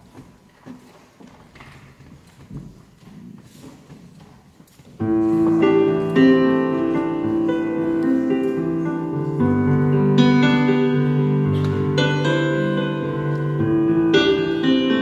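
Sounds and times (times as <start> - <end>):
slow piano chords: 5.0 - 15.0.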